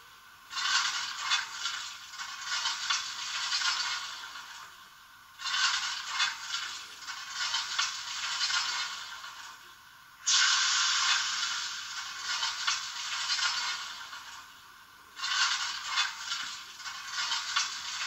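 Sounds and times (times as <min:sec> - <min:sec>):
steam locomotive hissing: 0:10.2 - 0:14.4.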